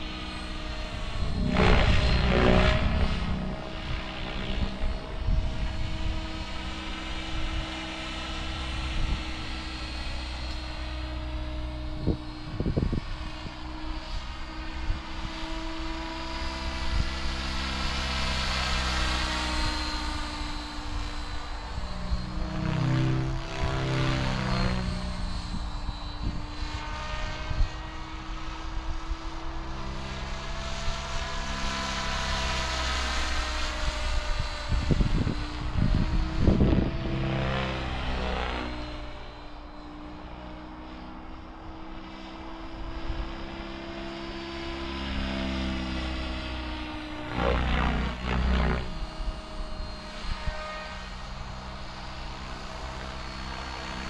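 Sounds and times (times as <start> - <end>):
rc helicopter rotor whine: 0.0 - 54.0.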